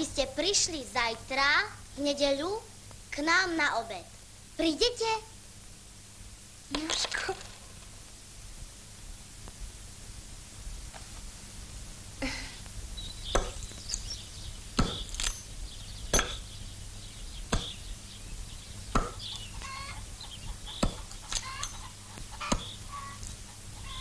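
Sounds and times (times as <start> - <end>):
axe chopping tree trunk: 13.3 - 13.7, 14.8 - 15.3, 16.1 - 16.4, 17.5 - 17.8, 18.9 - 19.3, 20.8 - 21.2, 22.5 - 22.8.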